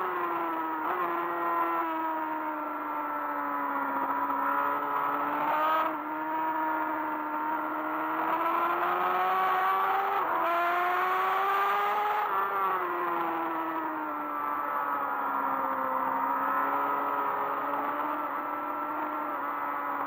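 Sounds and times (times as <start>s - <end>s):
motorcycle engine accelerating: 4.1s - 20.0s.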